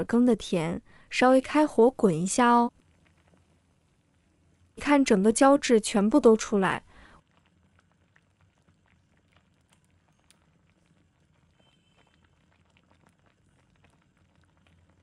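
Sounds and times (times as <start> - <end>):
soup simmering with small pops: 2.4 - 5.2, 6.2 - 15.0.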